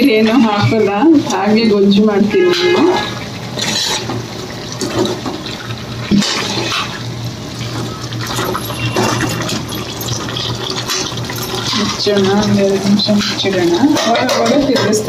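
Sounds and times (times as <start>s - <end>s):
gravy sizzling in a pan: 0.0s - 15.0s
spoon scraping a pan: 2.4s - 4.3s, 6.1s - 7.0s, 8.2s - 15.0s.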